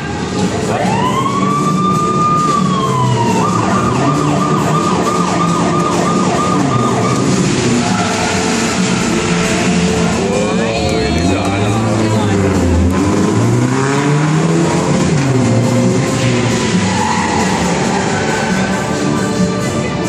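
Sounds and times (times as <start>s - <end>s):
police siren wailing and yelping: 0.3s - 9.2s, 16.4s - 19.2s.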